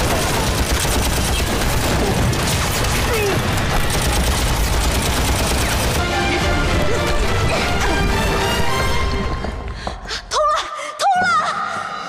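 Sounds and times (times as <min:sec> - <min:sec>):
machine gun firing: 0:00.0 - 0:06.2
music: 0:05.0 - 0:12.0.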